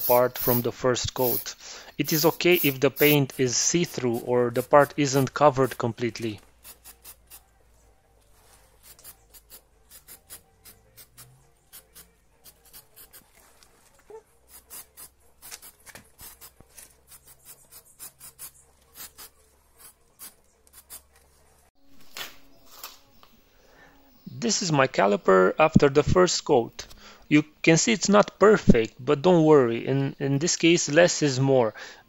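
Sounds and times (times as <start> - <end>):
aerosol can spraying: 0.0 - 4.3.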